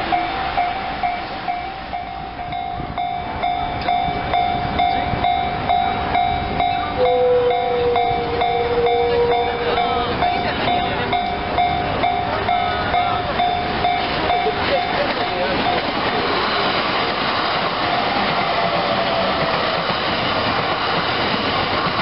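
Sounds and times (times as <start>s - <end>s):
long steady low tone: 0.0s - 14.9s
level-crossing alarm clanging: 0.0s - 22.0s.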